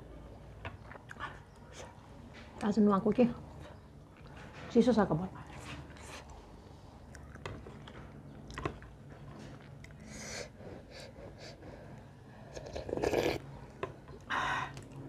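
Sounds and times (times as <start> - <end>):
mouth clicks and chewing: 0.7 - 2.0, 7.0 - 10.1
soup slurped from a spoon: 12.5 - 13.4.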